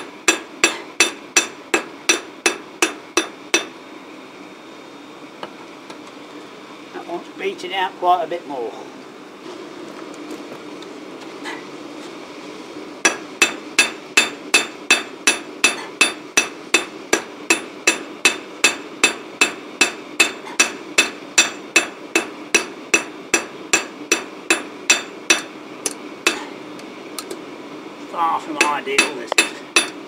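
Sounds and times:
steady low hum: 0.0s - 30.0s
hammer beating metal on anvil: 0.3s - 3.7s, 13.0s - 25.5s, 26.3s - 26.5s, 28.6s - 30.0s.

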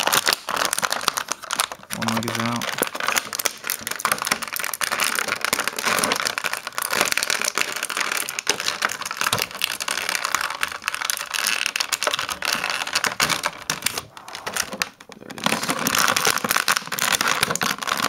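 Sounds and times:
plastic packaging crinkling: 0.0s - 18.0s.

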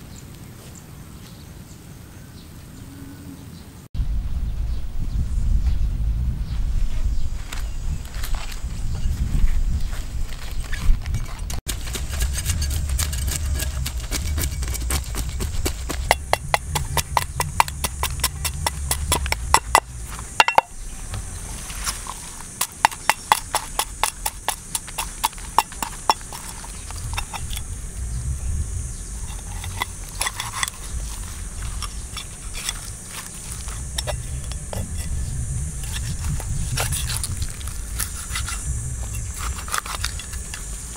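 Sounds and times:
cleaver scraping fish scales: 11.2s - 20.6s, 21.4s - 27.7s, 29.2s - 35.2s, 35.8s - 40.9s.

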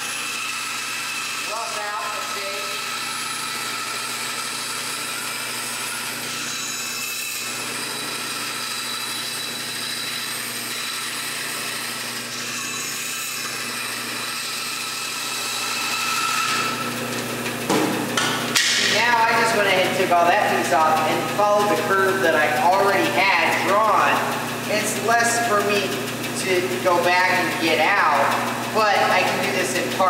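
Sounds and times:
band saw cutting wood: 0.0s - 30.0s.

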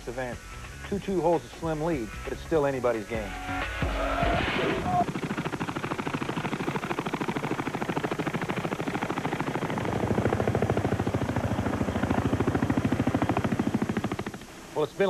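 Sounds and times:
helicopter rotor blades thudding: 4.5s - 14.5s.

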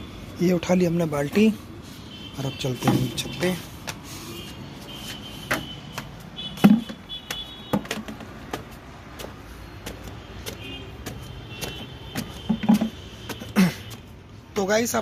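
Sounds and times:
footsteps on concrete stairs: 3.8s - 14.2s
sharp knocks of bucket: 6.6s - 7.0s, 7.7s - 8.7s, 12.2s - 13.0s.

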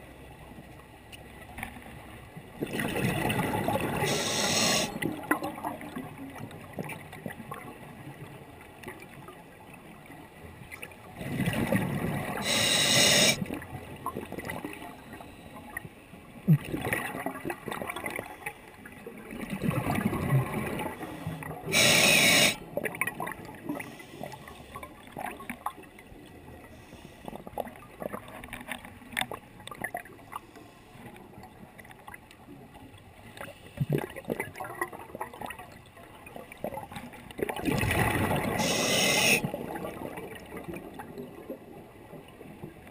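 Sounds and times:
faint underwater bubbling: 2.7s - 6.3s, 11.2s - 15.8s, 16.5s - 28.4s, 37.5s - 42.2s
regulator inhalation hiss: 4.0s - 4.9s, 12.4s - 13.4s, 21.7s - 22.6s, 38.6s - 39.4s
exhaled bubbles rumbling: 19.2s - 21.0s, 37.4s - 40.7s.

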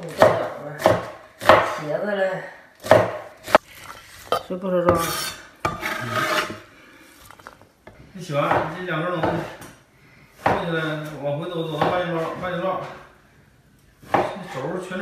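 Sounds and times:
knife chopping on wooden board: 0.0s - 1.8s, 2.8s - 3.6s.

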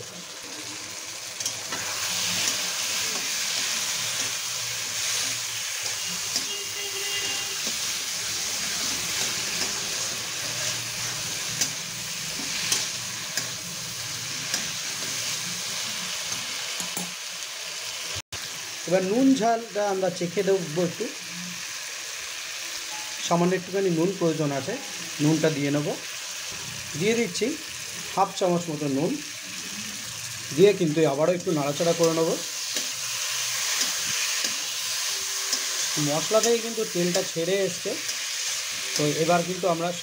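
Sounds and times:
vegetables sizzling in hot oil: 0.0s - 40.0s
metal spatula scraping pan: 1.7s - 13.6s.

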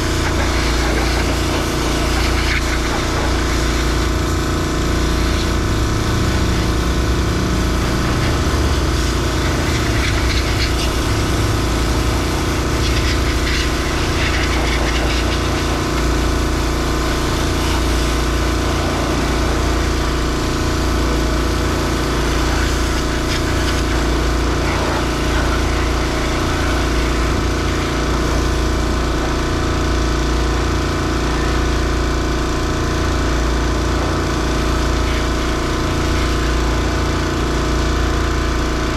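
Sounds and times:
engine running steadily: 0.0s - 38.9s.

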